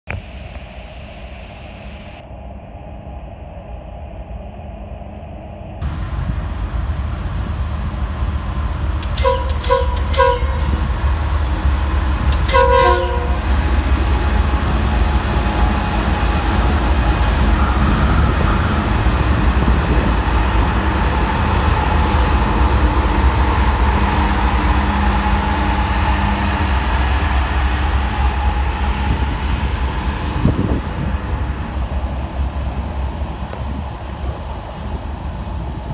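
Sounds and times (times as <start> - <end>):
diesel locomotive engine: 0.1 - 35.9
train wheels rumbling on rail: 5.3 - 35.9
train horn blasts: 9.0 - 11.1, 12.3 - 13.9.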